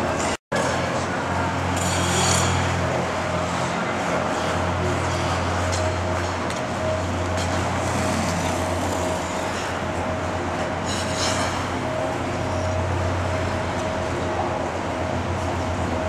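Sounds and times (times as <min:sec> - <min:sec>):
low hum and rumble of ice rink: 0:00.0 - 0:16.0
skate blades scraping ice: 0:10.8 - 0:11.7.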